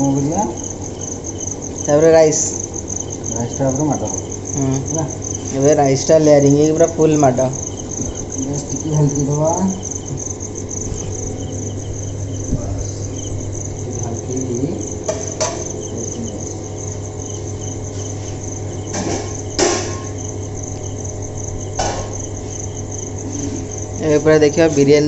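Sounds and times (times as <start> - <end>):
crickets chirping: 0.0 - 25.0
low hum: 7.3 - 24.0
sharp knocks: 15.0 - 15.8, 18.8 - 20.3, 21.7 - 22.3.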